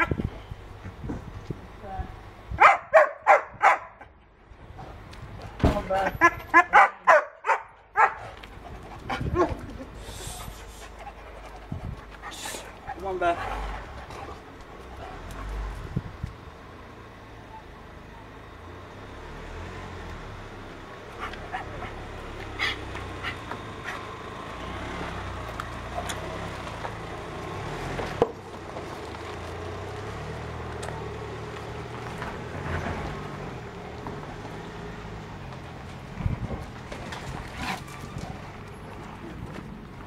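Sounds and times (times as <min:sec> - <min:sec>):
dog panting: 0:08.2 - 0:15.7, 0:21.1 - 0:24.1
steady low rumble: 0:08.2 - 0:17.2.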